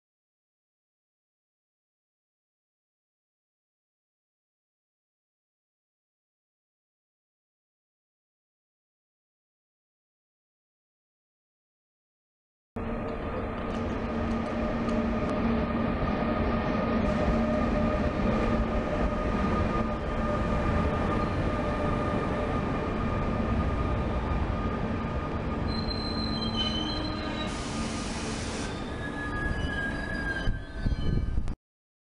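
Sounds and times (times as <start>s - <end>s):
train wheels rumbling: 12.8s - 31.0s
train wheels squealing: 18.8s - 22.0s, 25.6s - 31.5s.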